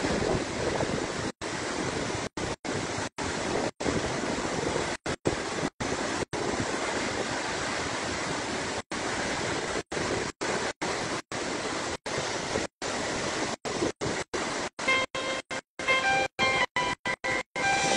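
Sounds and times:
water rushing over spillway: 0:00.0 - 0:17.9
music tones: 0:14.9 - 0:17.9.

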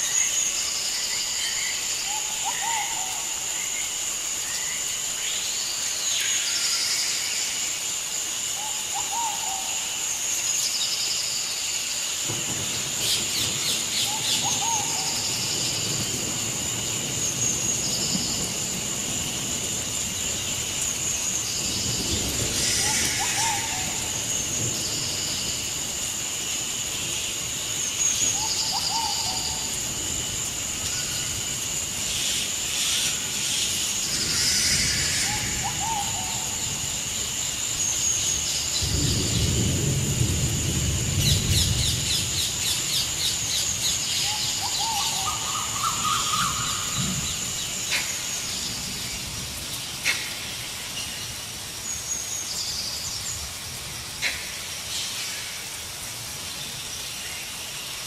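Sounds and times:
high insect drone: 0:00.0 - 0:58.0
bird calls: 0:32.8 - 0:36.8, 0:42.6 - 0:48.8.

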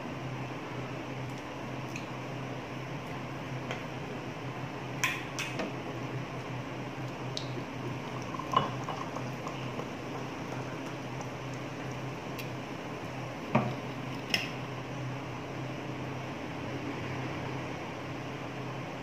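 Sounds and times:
electric fan humming: 0:00.0 - 0:19.0
soda pouring and fizzing: 0:07.5 - 0:14.2.

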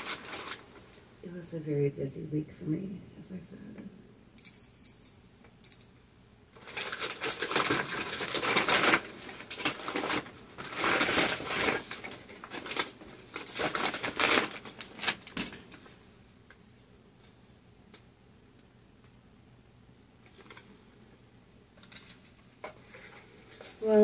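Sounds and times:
paper crinkling and rustling: 0:00.0 - 0:00.8, 0:06.6 - 0:16.0, 0:20.3 - 0:20.8.

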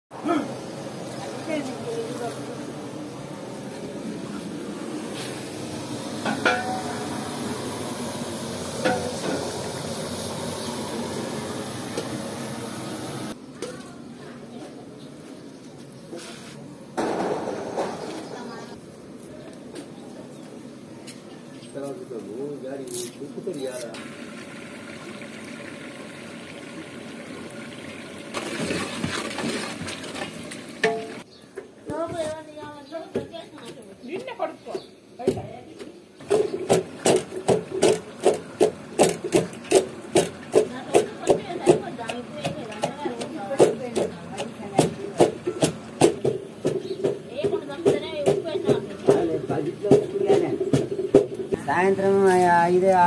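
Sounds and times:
onions frying in oil: 0:05.4 - 0:13.4, 0:23.5 - 0:31.2
water boiling hard in a pot: 0:05.4 - 0:13.4, 0:23.8 - 0:31.3, 0:36.2 - 0:44.0.

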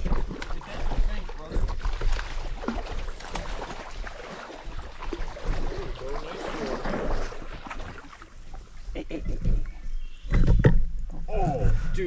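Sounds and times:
river water splashing: 0:00.0 - 0:09.1.

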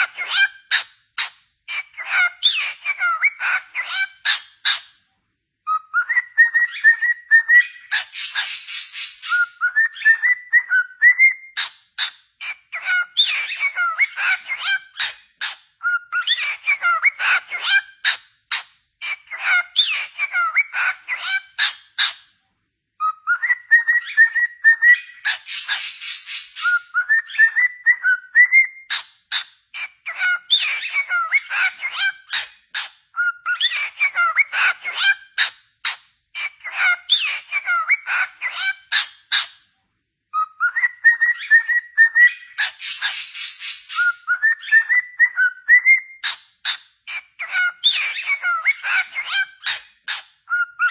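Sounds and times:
cockatiel singing: 0:00.0 - 0:22.4, 0:23.0 - 0:39.7, 0:40.3 - 0:50.9.

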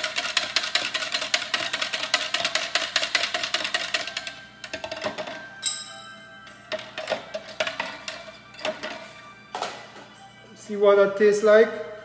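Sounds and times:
whisk clinking against glass: 0:00.0 - 0:06.0.

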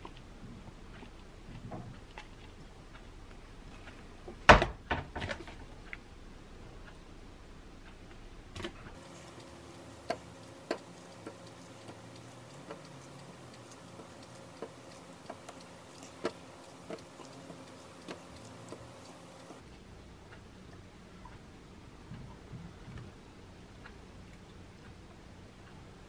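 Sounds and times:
faint steady hum: 0:05.6 - 0:26.0
soft clicks and taps of slices: 0:09.0 - 0:19.6.

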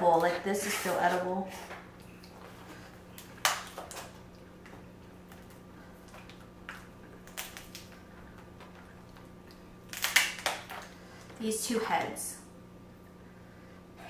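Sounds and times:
lobster shell crackling: 0:02.8 - 0:11.2.

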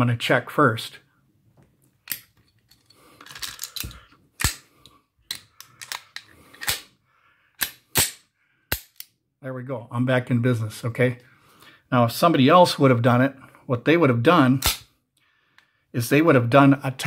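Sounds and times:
pistol metallic clicks and clacks: 0:02.0 - 0:02.4, 0:03.2 - 0:06.9, 0:07.6 - 0:09.2.

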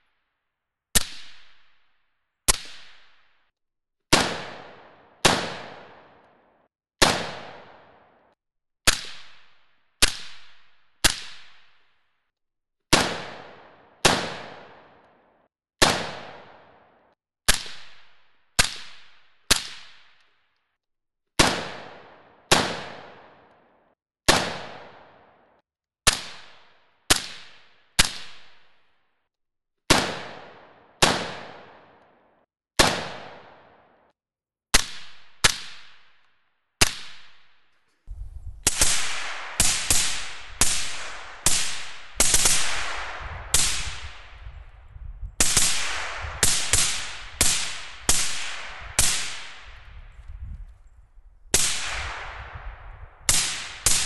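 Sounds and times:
suppressed rifle shots: 0:38.6 - 0:44.6, 0:45.4 - 0:50.0, 0:51.5 - 0:54.0.

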